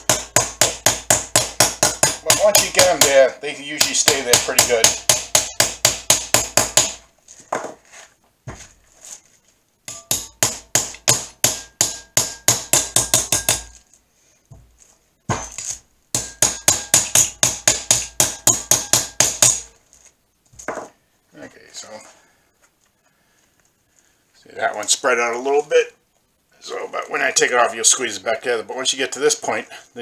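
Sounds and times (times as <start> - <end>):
hammer tapping metal: 0.0 - 3.2, 3.8 - 7.0, 9.9 - 13.8, 15.3 - 19.8.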